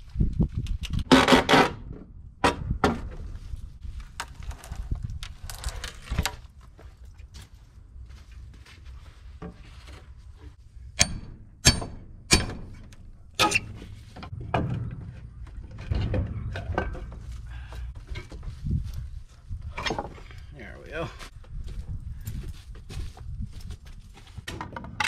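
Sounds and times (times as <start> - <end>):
crowbar and hammer knocking wood: 11.0 - 13.6.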